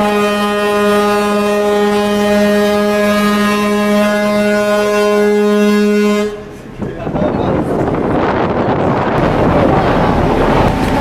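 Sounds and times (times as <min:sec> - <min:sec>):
ship whistle low blast: 0:00.0 - 0:06.5.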